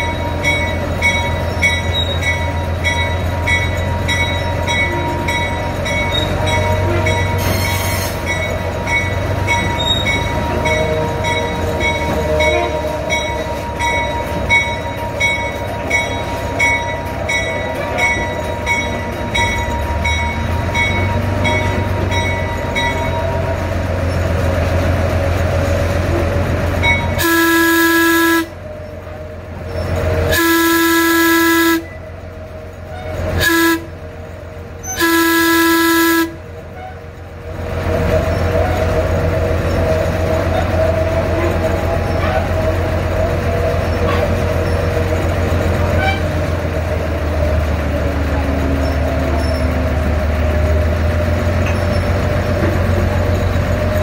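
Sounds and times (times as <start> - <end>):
diesel locomotive running: 0.0 - 54.0
locomotive air horn blasts: 27.2 - 28.6, 30.3 - 32.0, 33.0 - 34.0, 34.9 - 37.1, 45.9 - 46.4.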